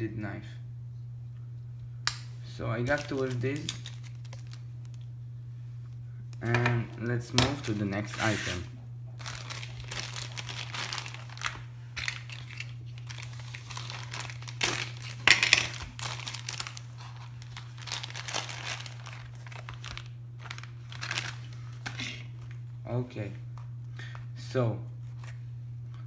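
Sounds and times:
plastic mailer bag crinkling: 0:02.8 - 0:05.1, 0:07.4 - 0:22.6.

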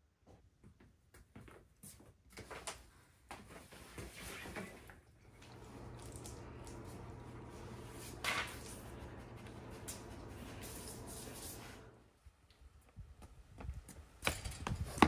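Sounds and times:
low room hum: 0:05.0 - 0:12.9.

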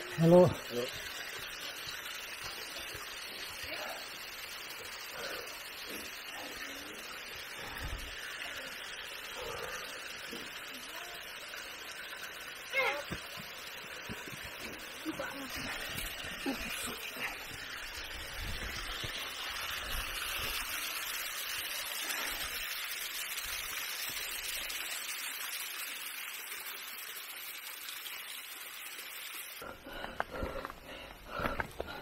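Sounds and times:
waterfall splashing on rock: 0:00.0 - 0:09.1, 0:09.7 - 0:29.5
footsteps on stony trail: 0:29.8 - 0:32.0.

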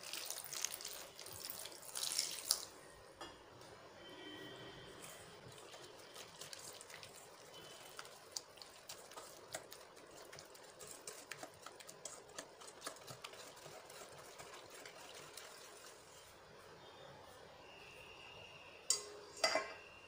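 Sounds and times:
whisk stirring batter: 0:05.0 - 0:16.5
whisk wires ticking on steel bowl: 0:05.5 - 0:15.9.

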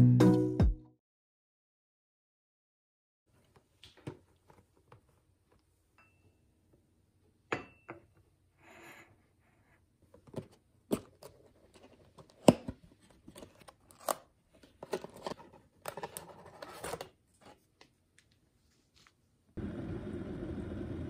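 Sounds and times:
card and paper rustling: 0:10.1 - 0:19.3.

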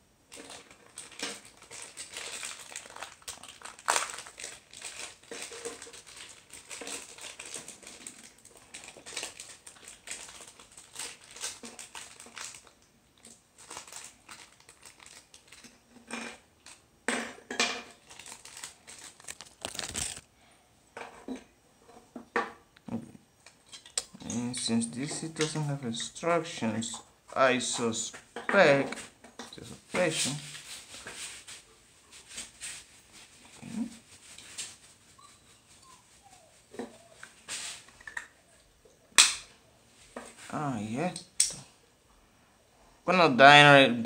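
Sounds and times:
plastic bag crinkling: 0:00.3 - 0:15.8, 0:17.8 - 0:20.3.

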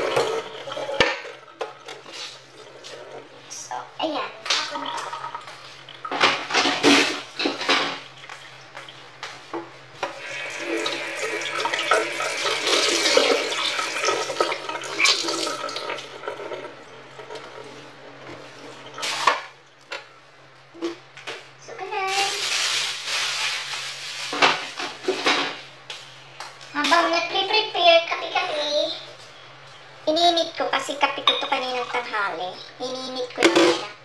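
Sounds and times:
dishes and utensils clattering: 0:00.0 - 0:02.2, 0:06.1 - 0:08.1, 0:24.3 - 0:25.6
tap water running into metal sink: 0:10.0 - 0:17.7.

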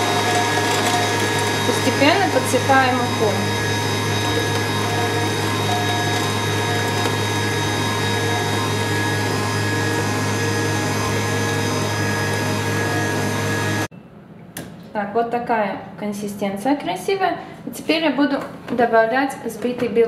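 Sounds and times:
electric hand mixer running: 0:00.0 - 0:13.9
stand mixer whisking: 0:00.0 - 0:13.9.

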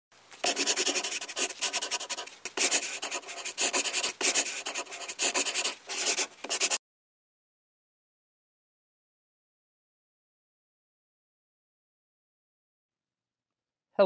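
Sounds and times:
pencil scratching on paper: 0:00.4 - 0:06.8.

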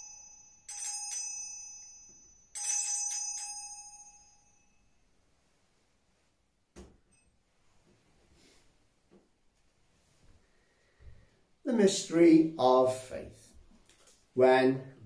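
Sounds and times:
altar bells ringing: 0:00.0 - 0:05.0.

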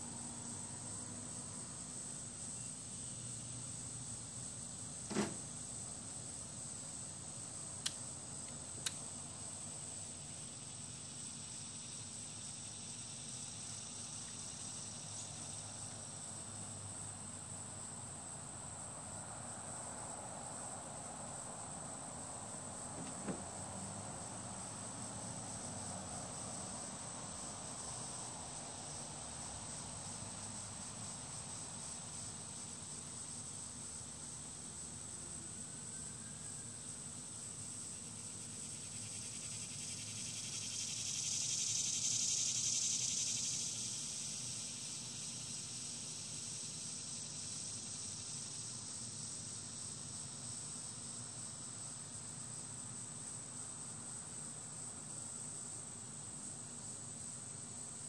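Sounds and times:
background hiss: 0:00.0 - 0:58.0
insects trilling: 0:00.0 - 0:58.0
faint clicks: 0:07.8 - 0:09.0.

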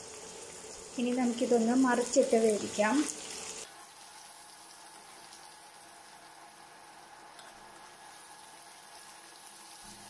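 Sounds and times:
prawns sizzling in oil: 0:00.0 - 0:10.0
spoon turning food in pan: 0:07.3 - 0:10.0.

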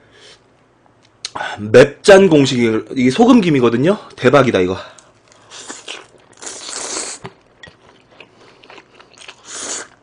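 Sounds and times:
soft chewing with mouth clicks: 0:05.0 - 0:10.0
slurping noodles: 0:05.5 - 0:07.3, 0:09.3 - 0:10.0.

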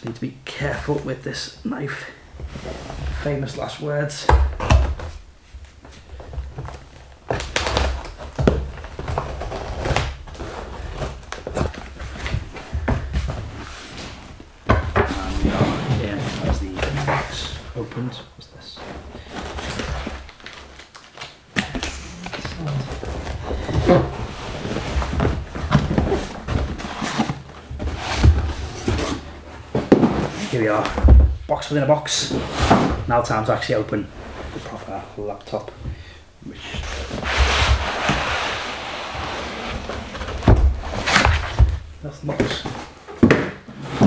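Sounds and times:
cardboard and paper rustling: 0:18.8 - 0:31.2.

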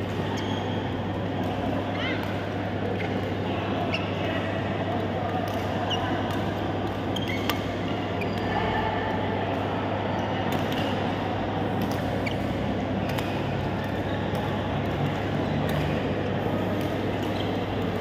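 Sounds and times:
steady hall hum: 0:00.0 - 0:18.0
shoes squeaking on court floor: 0:00.3 - 0:00.9, 0:07.2 - 0:07.6, 0:11.9 - 0:12.6, 0:17.3 - 0:17.8
rackets hitting shuttlecock: 0:05.4 - 0:08.5, 0:11.7 - 0:18.0.

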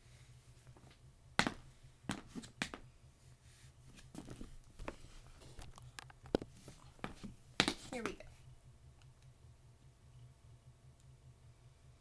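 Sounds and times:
tap shoes on wooden board: 0:06.3 - 0:08.2.

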